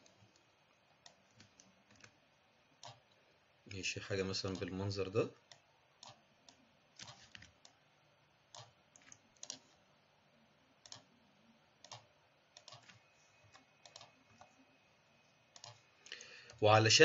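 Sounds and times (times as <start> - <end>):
computer mouse and keyboard clicks: 0.0 - 2.2, 2.8 - 3.2, 5.5 - 7.8, 8.5 - 9.8, 10.8 - 11.2, 11.8 - 14.6, 15.5 - 16.6.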